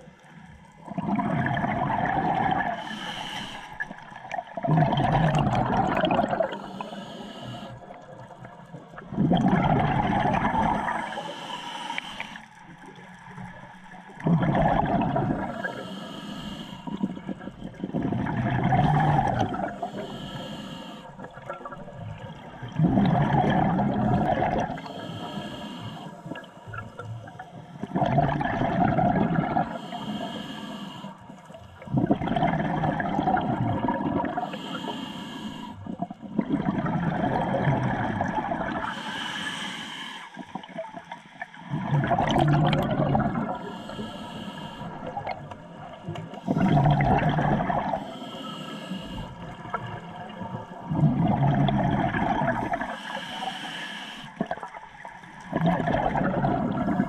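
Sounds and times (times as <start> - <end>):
exhaled bubbles gurgling: 0.0 - 39.7, 40.3 - 57.0
regulator hissing inhale: 2.8 - 3.9, 6.5 - 7.8, 10.8 - 12.5, 15.5 - 17.0, 19.7 - 21.2, 24.8 - 26.3, 29.6 - 31.8, 34.4 - 35.8, 38.8 - 40.5, 43.5 - 45.2, 47.9 - 49.5, 52.8 - 54.4.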